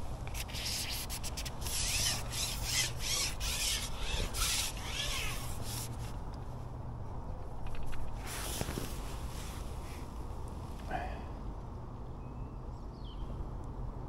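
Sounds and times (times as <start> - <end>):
fishing pole rasping over roller: 0.4 - 6.0.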